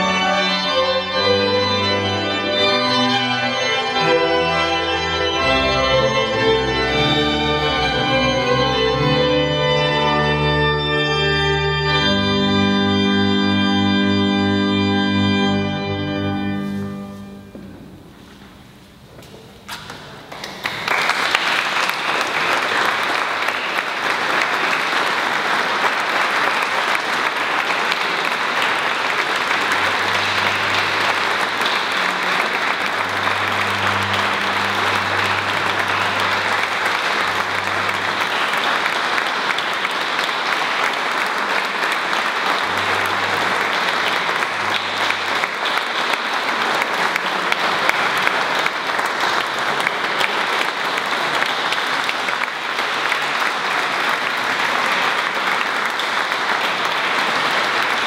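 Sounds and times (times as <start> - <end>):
audience applauding: 19.8 - 58.0.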